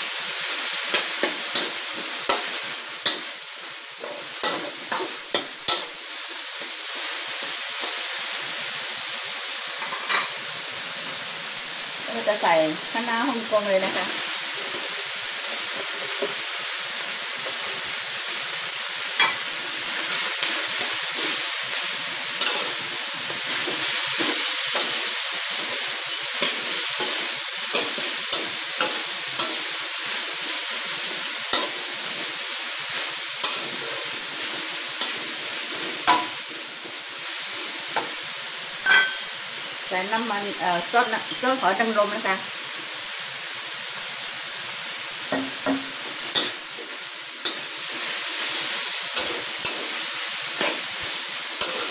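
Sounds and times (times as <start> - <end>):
food sizzling in a wok: 0.0 - 51.9
metal spatula scraping a wok: 0.7 - 6.2, 19.2 - 38.2, 45.5 - 51.9.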